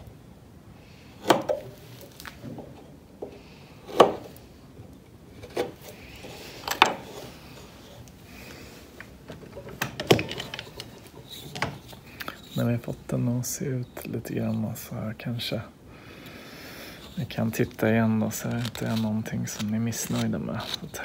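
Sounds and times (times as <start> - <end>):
blade scraping wood: 16.8 - 21.0
knife cutting wood: 17.0 - 21.0.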